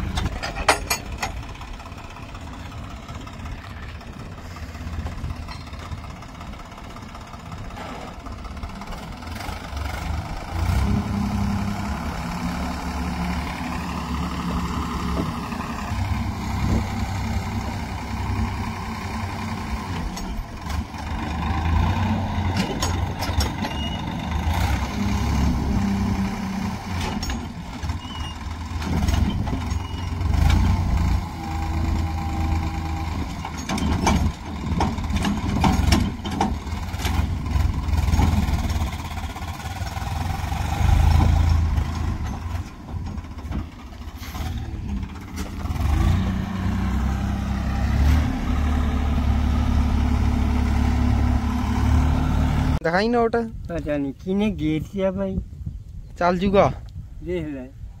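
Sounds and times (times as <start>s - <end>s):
knocks and clatters: 0.0s - 1.6s, 22.4s - 24.0s, 26.9s - 28.1s, 28.7s - 30.8s, 33.1s - 40.0s
diesel tractor engine running: 0.0s - 53.6s.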